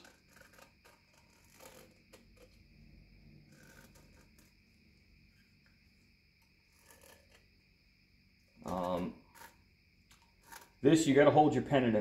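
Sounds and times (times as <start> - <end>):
light clicks and scratches: 0.0 - 2.7, 3.4 - 5.8, 6.4 - 7.5, 8.5 - 10.8.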